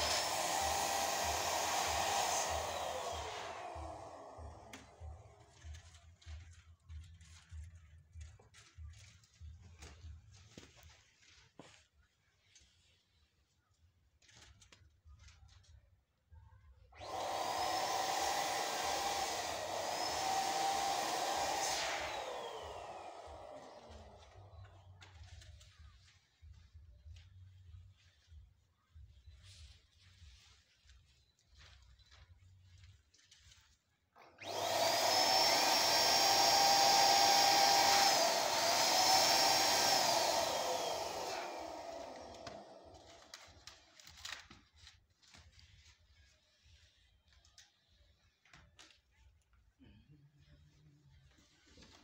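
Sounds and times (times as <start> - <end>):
electric blower motor whine: 0.0 - 5.2, 17.0 - 24.5, 34.4 - 43.4.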